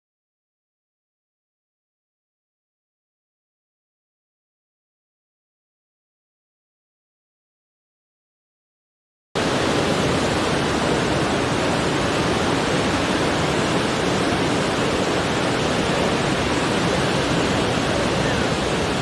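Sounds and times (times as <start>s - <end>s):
surf breaking over rocks: 9.4s - 19.0s.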